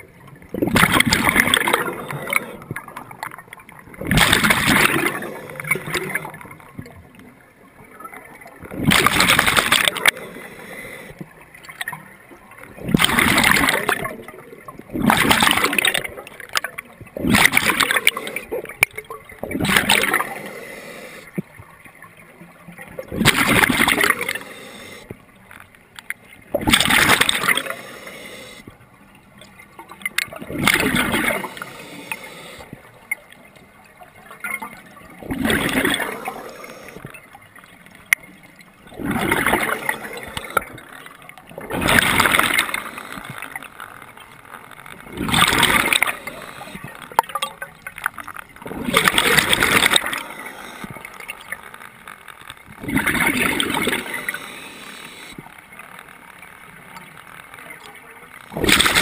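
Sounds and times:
exhaled bubbles rushing: 0.5s - 6.8s, 8.2s - 10.4s, 12.7s - 16.2s, 17.1s - 20.6s, 23.0s - 24.5s, 26.5s - 27.9s, 30.3s - 32.2s, 35.1s - 37.1s, 38.8s - 43.7s, 44.9s - 47.4s, 48.5s - 51.8s, 52.7s - 55.4s, 58.5s - 59.0s
diver breathing through regulator: 10.0s - 11.2s, 20.0s - 21.4s, 24.1s - 25.1s, 27.3s - 28.6s, 31.0s - 32.7s.

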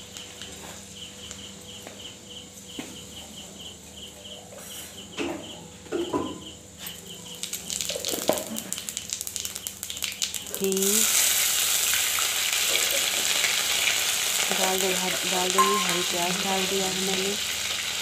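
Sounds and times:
seeds sizzling in hot oil: 6.8s - 18.0s
rhythmic chirping: 15.6s - 16.4s.

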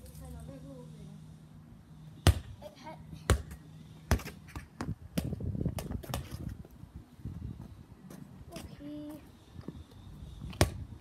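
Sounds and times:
ball knocks and scuffs: 2.2s - 2.6s, 3.2s - 6.7s, 10.5s - 10.9s
football thudding on concrete: 2.2s - 2.6s, 3.3s - 6.5s, 10.5s - 10.8s.

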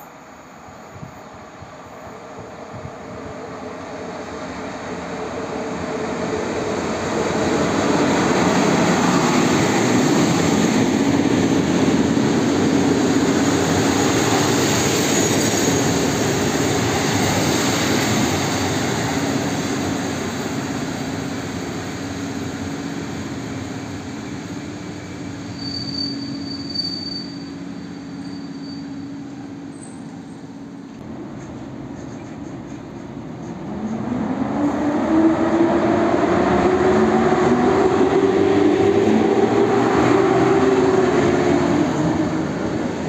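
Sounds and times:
train wheels rumbling on rails: 0.7s - 43.0s
brake squeal: 25.4s - 30.8s.

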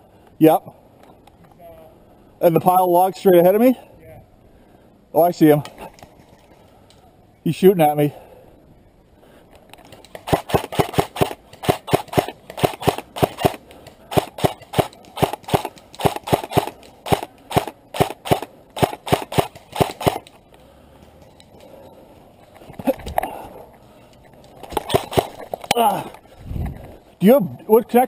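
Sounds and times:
airsoft rifle shots: 10.0s - 20.4s, 24.7s - 25.4s.

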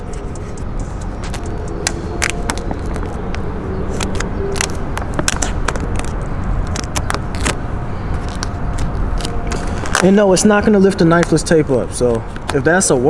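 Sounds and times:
low rumble: 0.0s - 10.1s
squeegee scraping vinyl film: 1.2s - 11.4s.

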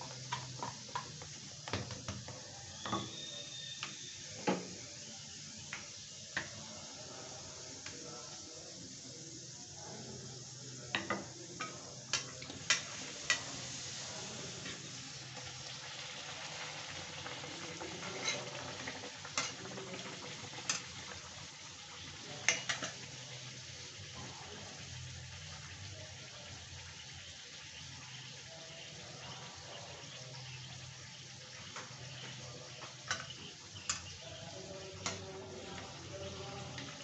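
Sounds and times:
bread deep-frying in hot oil: 0.0s - 37.0s
metal spatula scraping a pan: 18.0s - 18.6s.

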